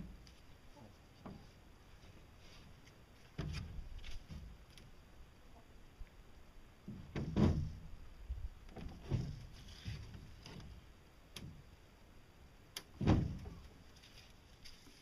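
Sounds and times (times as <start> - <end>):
metal arm thumping boat hull: 6.9 - 7.9, 13.0 - 13.6.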